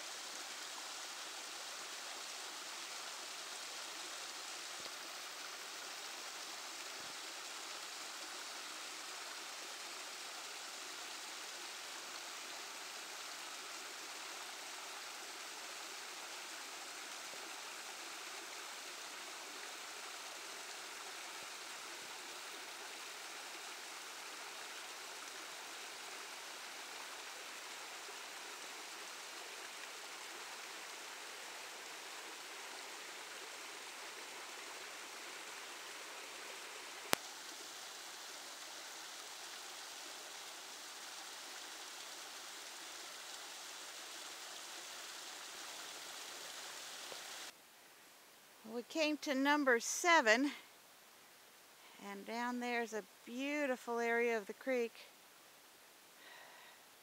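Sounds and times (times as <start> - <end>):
waterfall splashing over rocks: 0.0 - 47.6.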